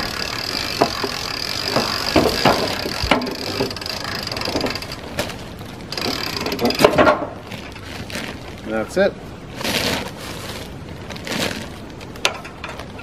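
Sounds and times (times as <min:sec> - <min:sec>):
hand winch clicking: 0:00.0 - 0:05.2, 0:05.9 - 0:07.1
log knocking on ramps: 0:00.8 - 0:03.8.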